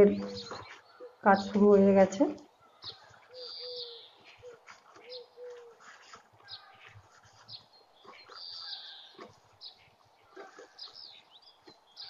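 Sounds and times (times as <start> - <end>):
bird cooing: 0.0 - 1.7, 2.9 - 5.9.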